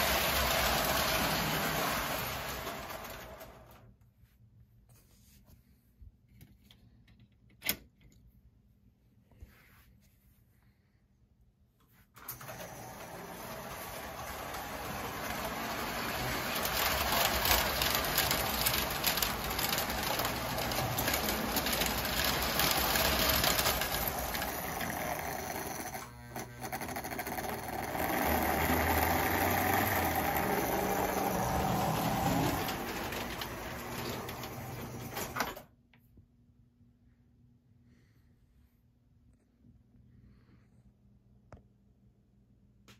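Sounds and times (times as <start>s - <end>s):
toy train motor whirring: 0.0s - 3.8s, 12.2s - 35.3s
toy train wheels clattering: 0.0s - 3.8s, 12.4s - 35.5s.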